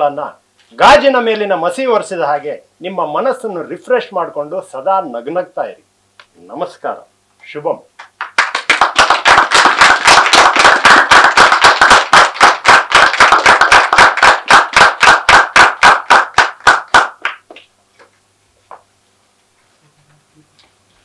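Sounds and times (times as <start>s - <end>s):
hands clapping close by: 8.0s - 18.1s
audience applause: 8.2s - 17.4s.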